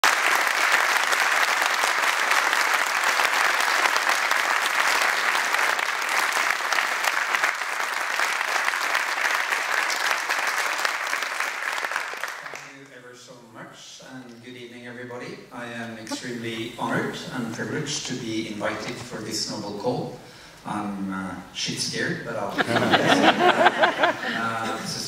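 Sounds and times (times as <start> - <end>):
audience applauding: 0.0 - 12.7, 22.8 - 24.6.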